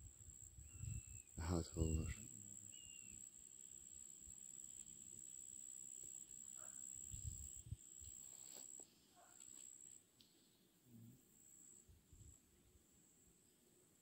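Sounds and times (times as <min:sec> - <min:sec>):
high-pitched insect song: 0:00.0 - 0:10.6.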